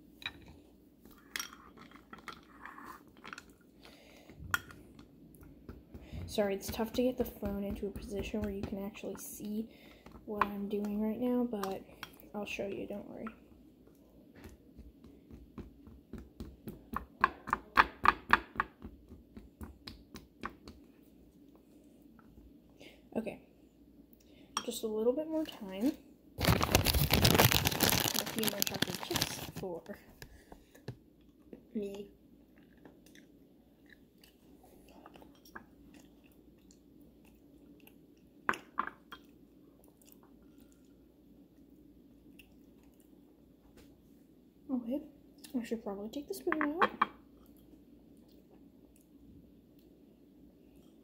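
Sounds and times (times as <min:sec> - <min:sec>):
person chewing: 0:32.6 - 0:38.3.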